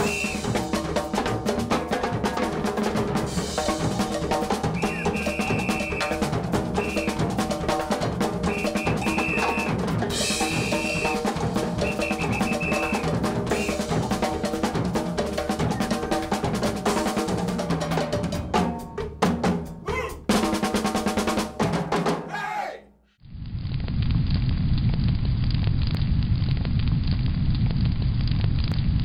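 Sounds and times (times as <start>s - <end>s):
percussion ensemble playing groove: 0.0s - 22.4s.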